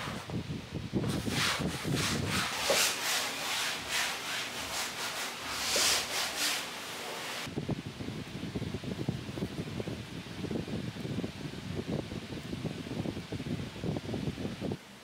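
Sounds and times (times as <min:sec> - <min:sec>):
rag scrubbing canvas: 0:01.0 - 0:07.5.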